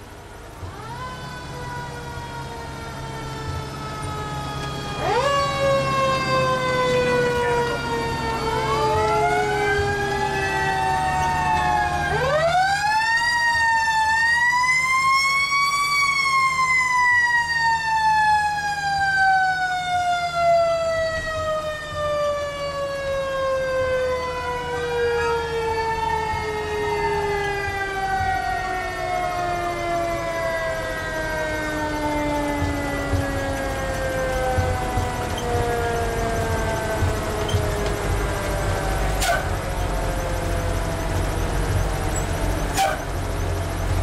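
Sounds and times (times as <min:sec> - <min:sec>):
fire truck sirens wailing: 0:00.0 - 0:44.0
low engine drone: 0:00.0 - 0:44.0.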